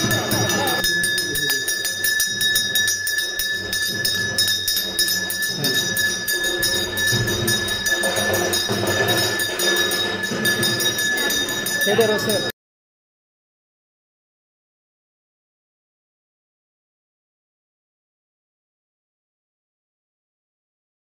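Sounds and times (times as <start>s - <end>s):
hand bell ringing rapidly: 0.0s - 12.5s.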